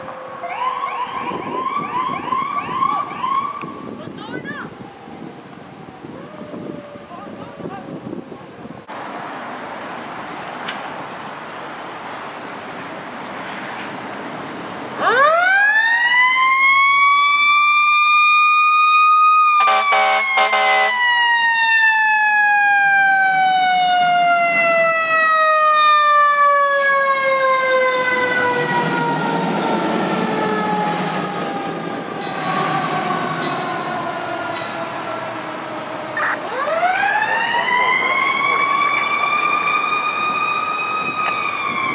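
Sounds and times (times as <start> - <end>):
fire engine siren wailing: 0.0 - 8.9, 14.8 - 41.9
air horn blasts: 19.6 - 21.0.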